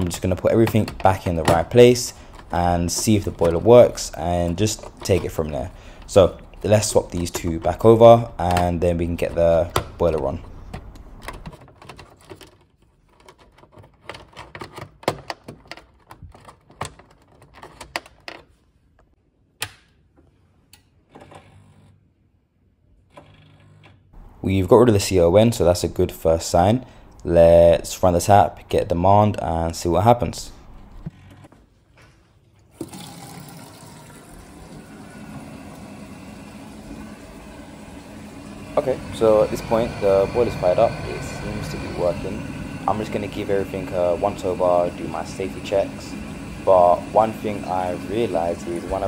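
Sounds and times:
plastic plugs clicking and rattling: 0:08.4 - 0:18.5
water flowing: 0:32.7 - 0:49.0
boiler humming: 0:32.8 - 0:49.0.

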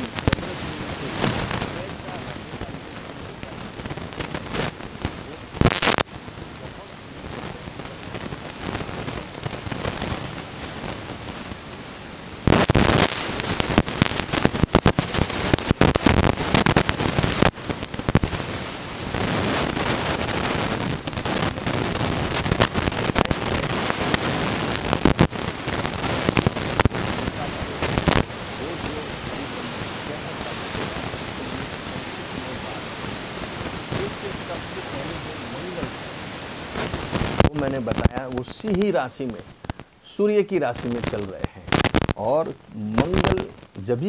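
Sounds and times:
crackling hiss with sharp pops: 0:00.0 - 0:44.0.

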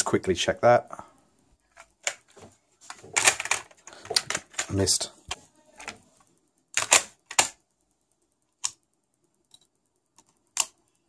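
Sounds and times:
tape deck clicks and clacks: 0:06.8 - 0:07.6.

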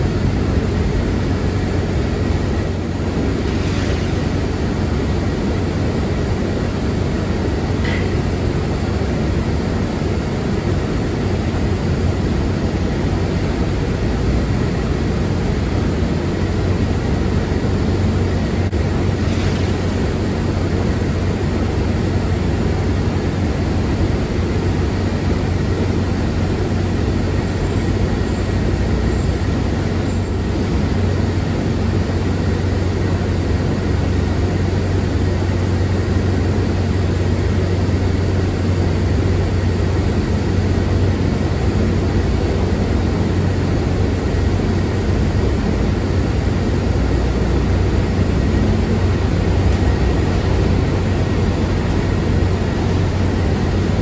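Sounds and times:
jet engines rushing: 0:00.0 - 0:54.0
low engine hum: 0:00.0 - 0:54.0.

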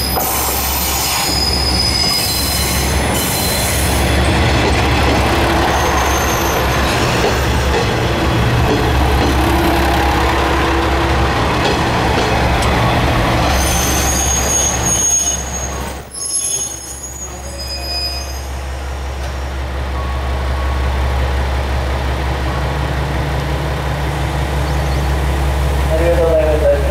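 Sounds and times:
train brakes squealing: 0:00.0 - 0:04.4, 0:05.5 - 0:07.7, 0:13.4 - 0:19.1.

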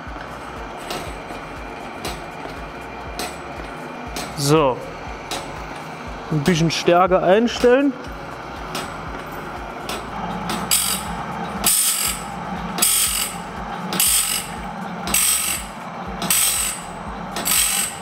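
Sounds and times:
motor hum: 0:00.0 - 0:18.0
grinding wheel rasping hiss: 0:00.3 - 0:18.0
feed mechanism clicking: 0:08.7 - 0:18.0.

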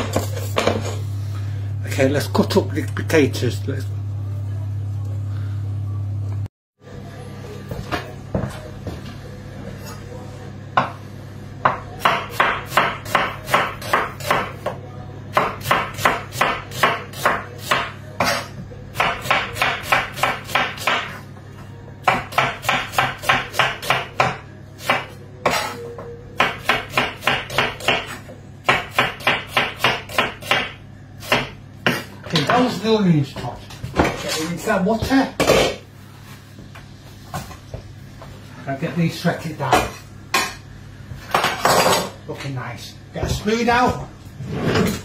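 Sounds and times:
knife chopping on wooden board: 0:22.1 - 0:25.8, 0:26.4 - 0:32.6.

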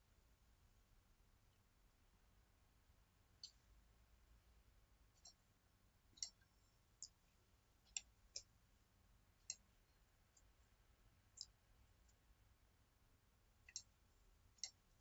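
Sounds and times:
computer mouse clicks: 0:13.7 - 0:14.0.

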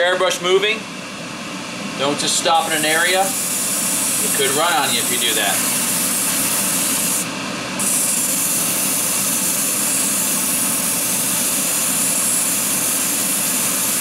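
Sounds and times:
airbrush spraying hiss: 0:02.7 - 0:14.0.

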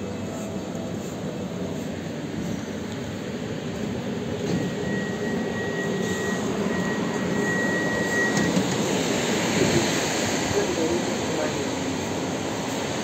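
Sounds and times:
train equipment whirring hum: 0:00.0 - 0:13.0
high beeping tone: 0:04.6 - 0:08.7.

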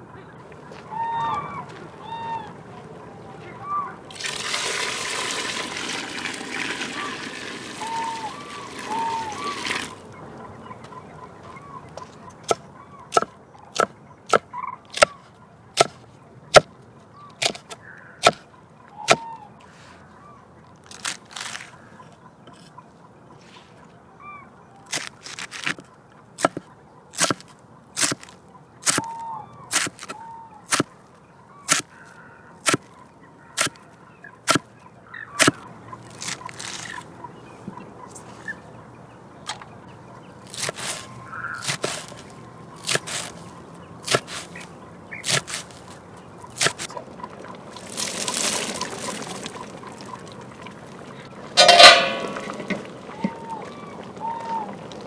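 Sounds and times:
faint fowl calls: 0:00.0 - 0:04.2, 0:06.7 - 0:27.0, 0:28.0 - 0:38.8, 0:39.4 - 0:55.0.

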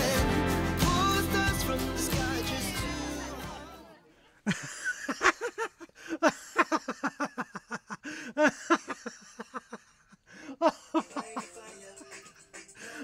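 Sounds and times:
background music: 0:00.0 - 0:04.0, 0:11.0 - 0:13.0
women laughing: 0:04.4 - 0:13.0.

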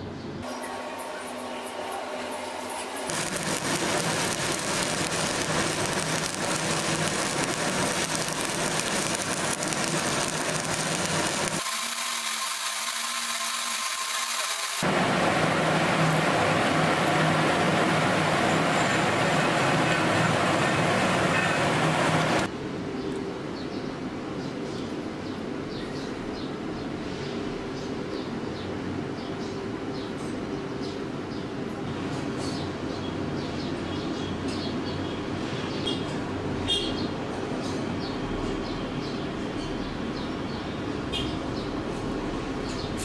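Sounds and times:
welding arc crackling hiss: 0:02.9 - 0:22.5.

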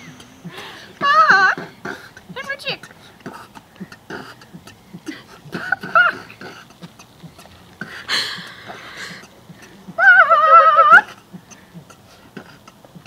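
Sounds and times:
breathy rush of air: 0:00.0 - 0:10.0
soft beatboxed ticks: 0:00.0 - 0:13.0
rubber chicken squawk: 0:10.0 - 0:11.2.

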